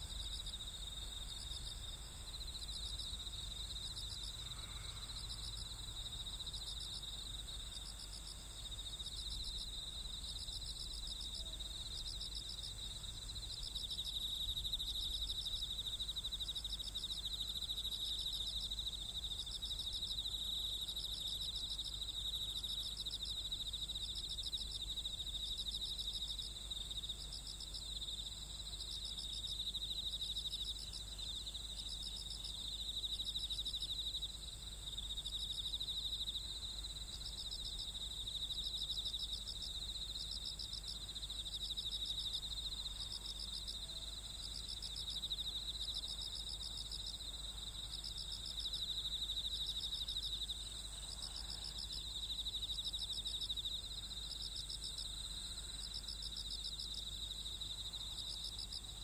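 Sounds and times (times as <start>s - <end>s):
insect steady high trill: 0.0s - 26.4s.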